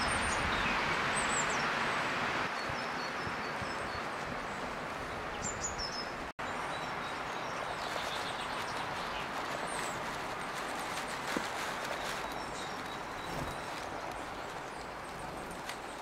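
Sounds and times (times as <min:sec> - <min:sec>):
small birds chirping: 0:00.0 - 0:01.9, 0:02.5 - 0:16.0.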